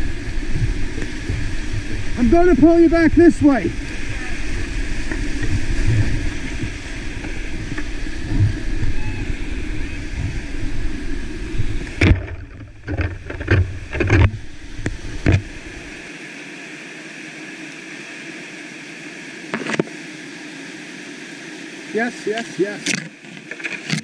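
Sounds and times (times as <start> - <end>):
wind buffeting microphone: 0.0 - 16.0
whitewater rushing: 0.0 - 24.0.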